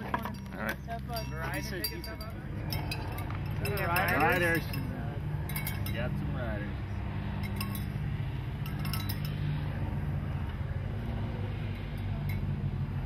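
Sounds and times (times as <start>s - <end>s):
light clinks: 0.0s - 6.2s, 7.4s - 8.0s, 8.6s - 9.6s
low engine drone: 0.0s - 13.0s.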